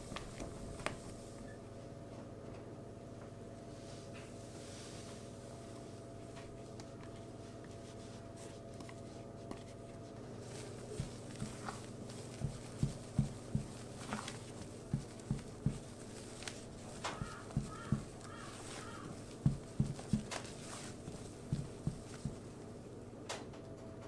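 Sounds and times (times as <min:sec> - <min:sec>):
spatula knocking in glass bowl: 0:17.1 - 0:20.3.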